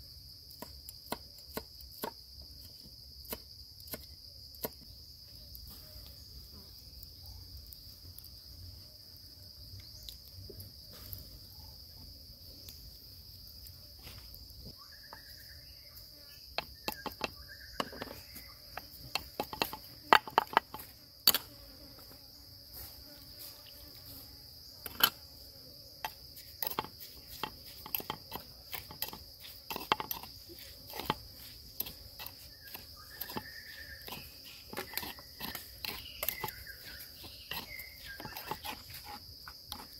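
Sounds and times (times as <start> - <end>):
insects droning: 0.0 - 39.9
sharp clicks and knocks: 16.6 - 18.2, 18.8 - 21.4.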